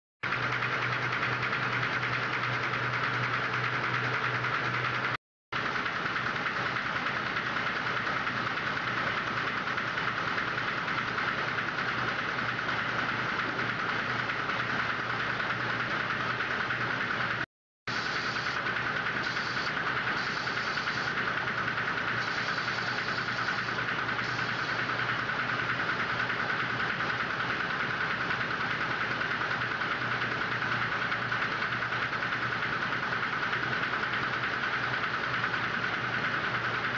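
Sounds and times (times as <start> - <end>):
machinery droning: 0.3 - 28.1.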